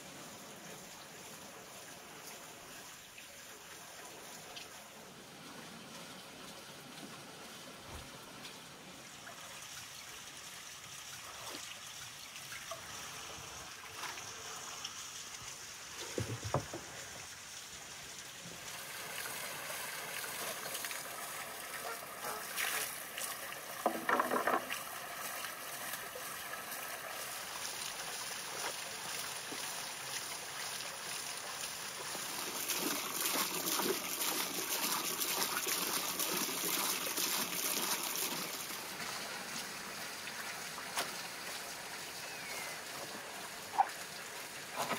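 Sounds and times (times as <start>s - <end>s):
water splashing into wooden barrel: 20.0s - 25.4s, 32.1s - 38.7s.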